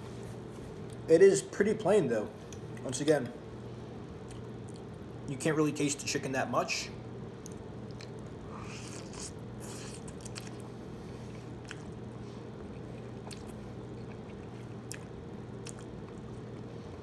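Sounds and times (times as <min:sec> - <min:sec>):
steady low hum: 0:00.0 - 0:17.0
noodle slurping and chewing: 0:07.5 - 0:17.0.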